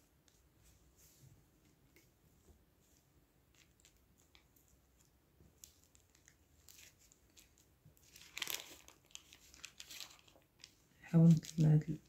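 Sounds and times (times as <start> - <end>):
paper rustling: 3.5 - 12.0.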